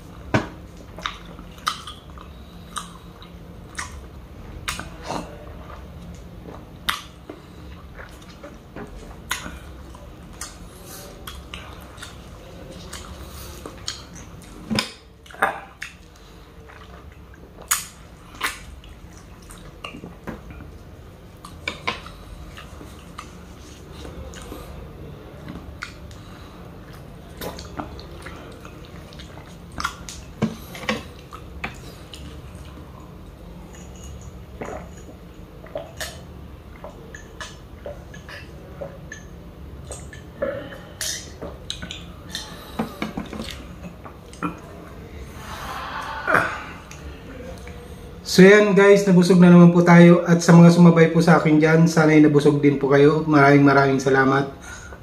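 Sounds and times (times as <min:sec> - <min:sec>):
mouth sucking and chewing: 0:25.5 - 0:47.8.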